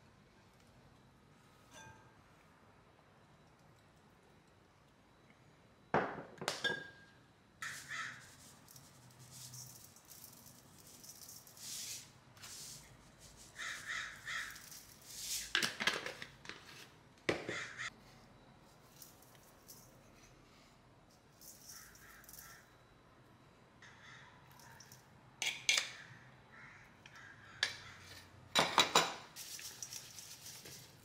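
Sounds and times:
seeds rattling in shaker bottle: 7.7 - 12.1, 13.4 - 15.5, 29.4 - 31.0.

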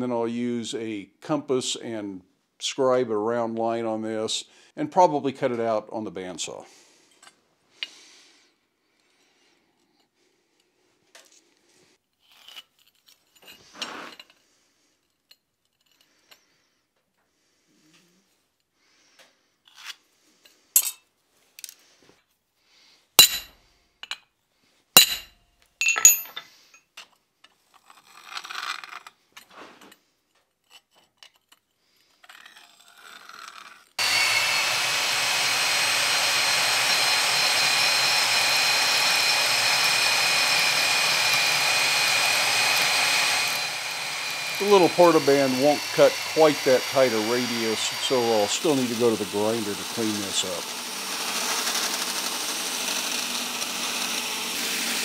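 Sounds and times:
bandsaw cutting steel whine: 34.0 - 55.0.

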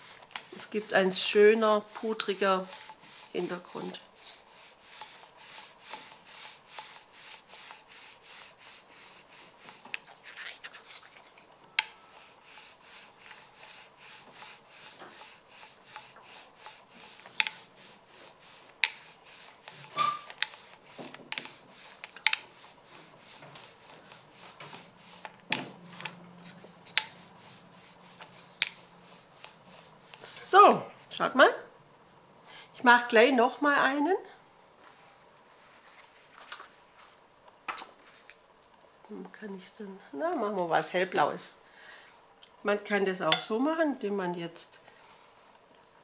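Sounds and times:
paint roller rubbing: 0.0 - 31.3.

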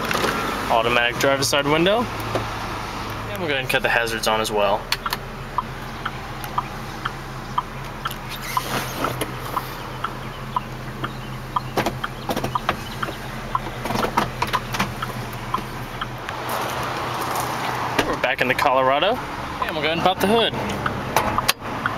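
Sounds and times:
engine idling hum: 0.0 - 21.9
sharp clicks: 4.9 - 16.4, 20.7 - 21.9.

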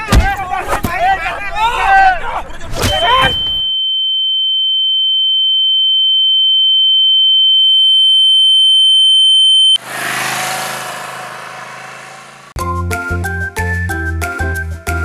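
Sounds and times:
high ear-ringing tone: 3.0 - 9.8.

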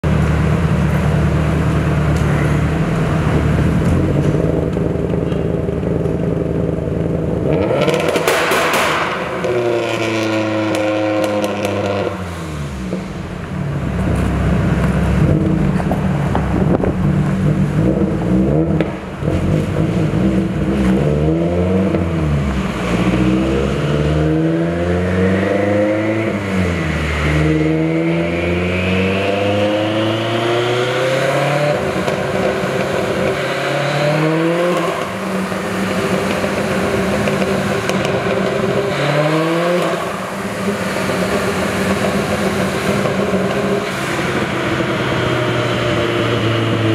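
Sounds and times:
car engine revving on a dyno: 0.0 - 46.9
high turbo whine: 0.0 - 46.9.

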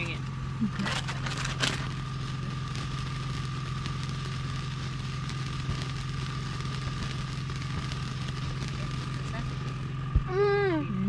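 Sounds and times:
faint high whine: 0.0 - 11.0
motor humming: 0.0 - 11.0.

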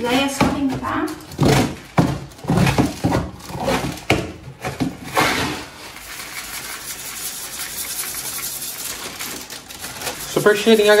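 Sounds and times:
paper bag rustling: 1.0 - 11.0
metal scoop scraping cat litter: 5.1 - 11.0.

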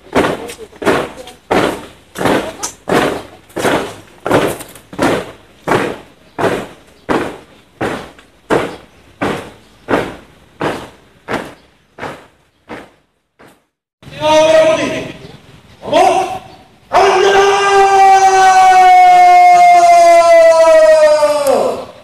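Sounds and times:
boots marching on pavement: 0.0 - 13.8.

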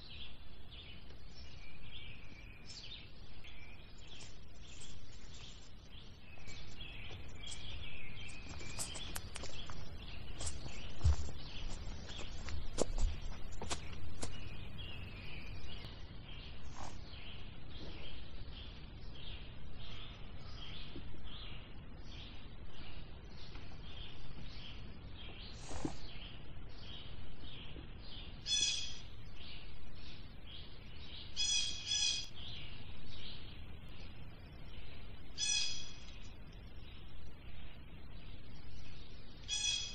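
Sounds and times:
louder lower bird call: 35.4 - 36.0.

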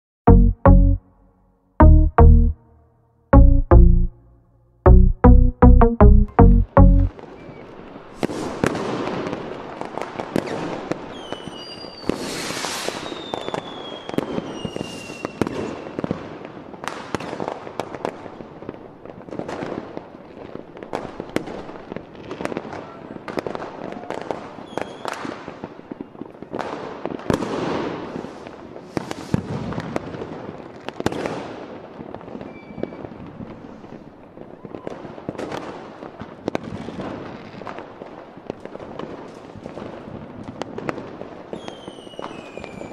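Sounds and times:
fireworks bangs and crackles: 7.2 - 42.9
falling firework whistles: 7.4 - 8.8, 10.3 - 16.1, 24.6 - 25.4, 27.9 - 30.0, 32.4 - 33.9, 41.5 - 42.9.

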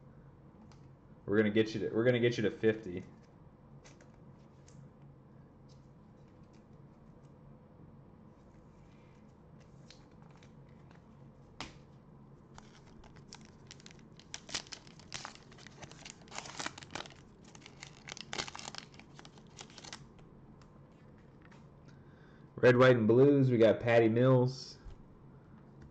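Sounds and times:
wrapper being torn open: 12.6 - 20.1.

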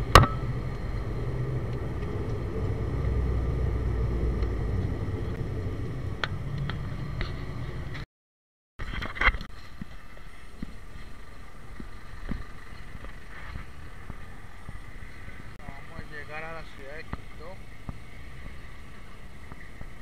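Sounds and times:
aircraft engine drone: 0.0 - 8.0
outdoor noise: 0.0 - 8.1, 8.8 - 20.0.

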